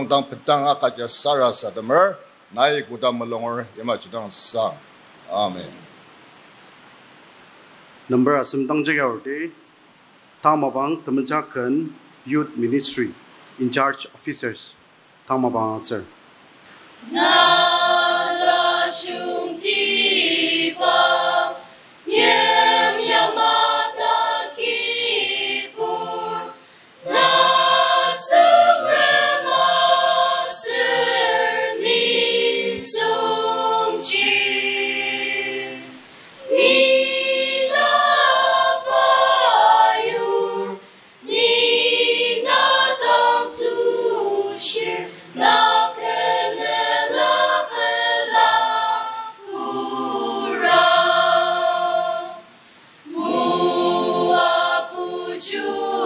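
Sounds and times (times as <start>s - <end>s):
mixed choir singing unaccompanied: 0.0s - 2.0s, 17.0s - 56.0s.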